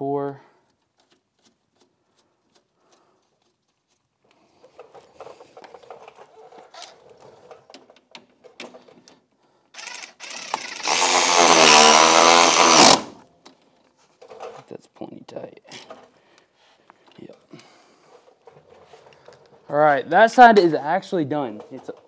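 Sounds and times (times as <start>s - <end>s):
impact wrench running: 9.8s - 13.2s.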